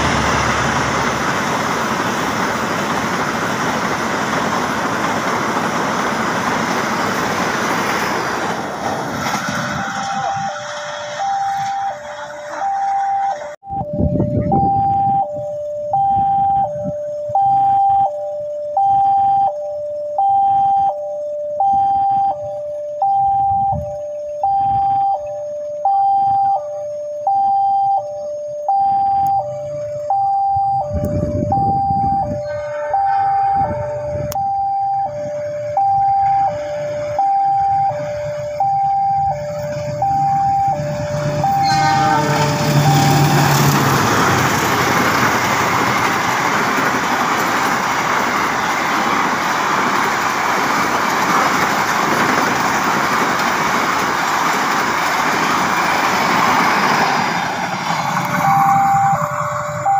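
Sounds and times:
train wheels rumbling on rails: 0.0 - 15.5, 30.8 - 59.9
two-tone crossing alarm: 0.0 - 59.9.

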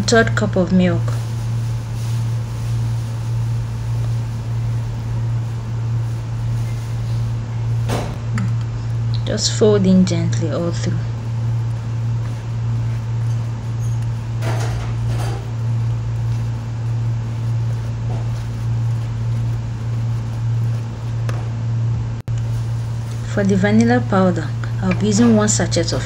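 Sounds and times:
steady low hum: 0.0 - 26.0
wooden spoon scraping batter: 8.8 - 21.4, 22.8 - 26.0.

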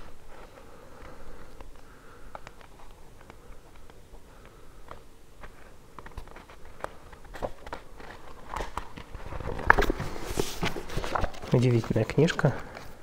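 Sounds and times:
book pages clicking and crackling: 0.0 - 13.0
page turning rustle: 2.4 - 13.0.

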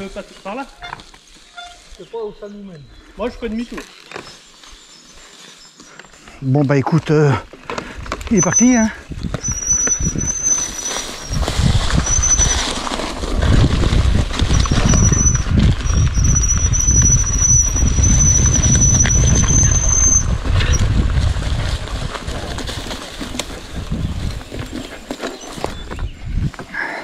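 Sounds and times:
bike tyres rumbling: 3.2 - 27.0
high brake squeal: 8.3 - 12.8, 14.6 - 20.8.

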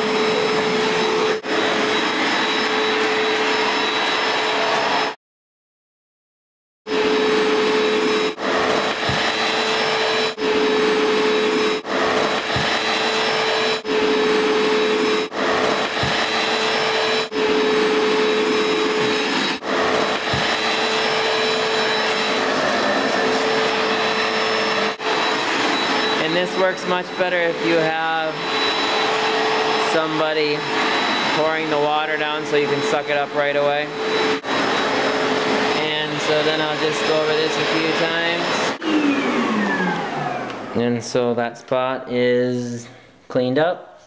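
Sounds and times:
carpet cleaner motor running: 0.0 - 5.2, 6.9 - 40.9.

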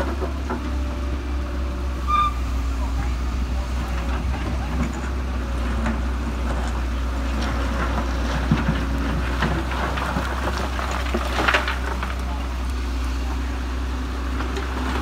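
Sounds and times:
excavator diesel engine drone: 0.0 - 15.0
bucket scraping rocks and soil: 6.4 - 12.7.

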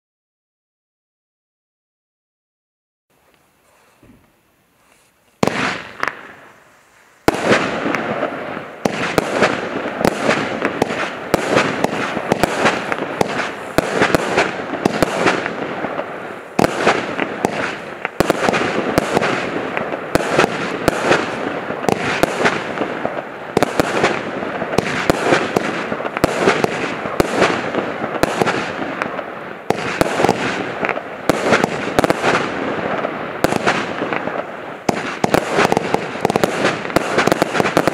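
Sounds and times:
firework crackling: 3.2 - 37.9
firework launches and bangs: 5.4 - 6.6, 7.2 - 37.9.

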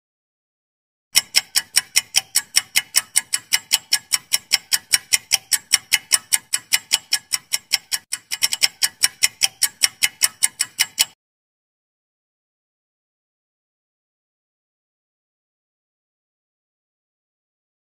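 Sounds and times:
countdown timer ticking: 1.2 - 11.2.

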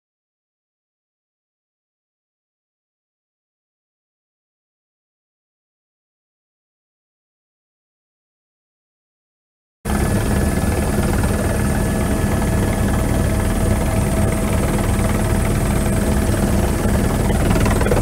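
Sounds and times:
helicopter rotor beat: 9.9 - 18.0
high turbine engine whine: 9.9 - 18.0.

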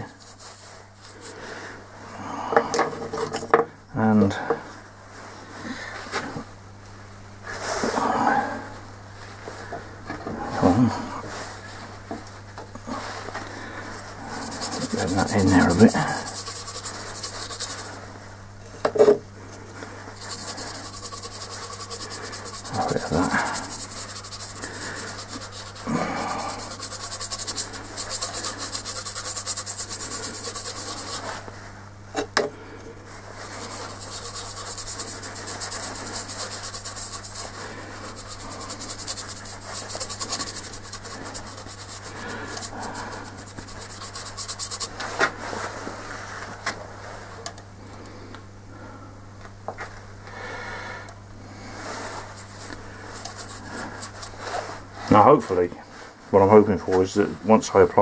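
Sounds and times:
paintbrush scrubbing wood: 0.0 - 1.4, 14.2 - 18.0, 20.1 - 31.4, 33.2 - 45.0, 52.1 - 54.6.

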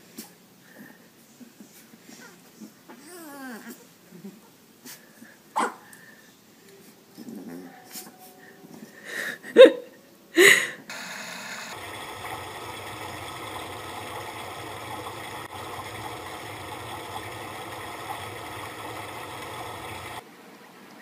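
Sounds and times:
machine-like hum: 10.9 - 20.8.

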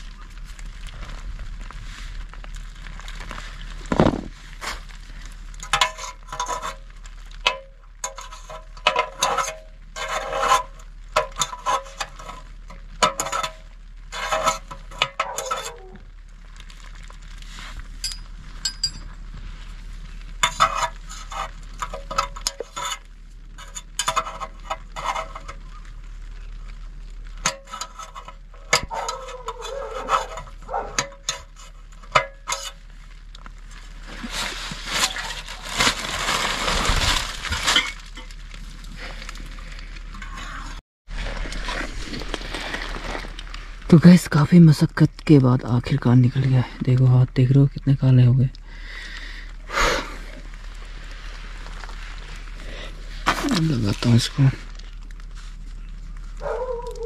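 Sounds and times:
metal pick scraping and clinking: 5.6 - 16.0, 18.0 - 19.2, 20.4 - 25.7, 27.4 - 32.8.

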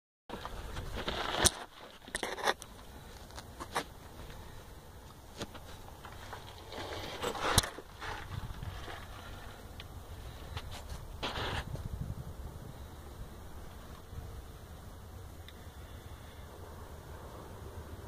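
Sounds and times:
phone handling rustling and scraping: 0.3 - 4.4, 5.2 - 9.9.

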